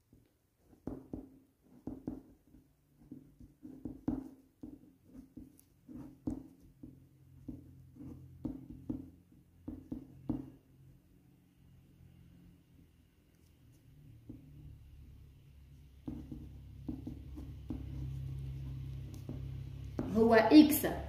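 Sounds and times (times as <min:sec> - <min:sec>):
pen scratching on paper: 0:00.6 - 0:10.4, 0:16.0 - 0:20.2.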